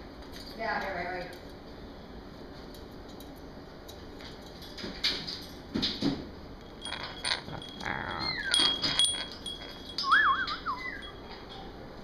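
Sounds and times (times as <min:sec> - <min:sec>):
light clicks and rattles: 0:06.6 - 0:10.2
parrot whistling: 0:10.0 - 0:11.3.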